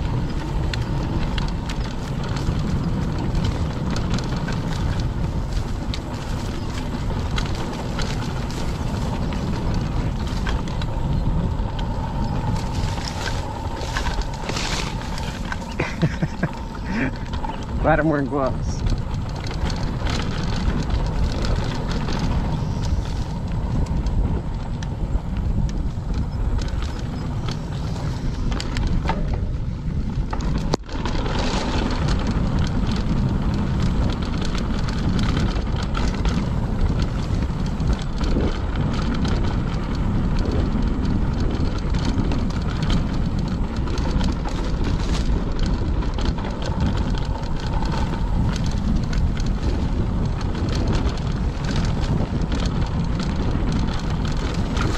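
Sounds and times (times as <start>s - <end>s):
bike clicks and rattles: 0.0s - 54.9s
tyres rumbling on dirt: 0.0s - 54.9s
wind rush on microphone: 0.0s - 54.9s
brush against bike: 0.2s - 23.9s.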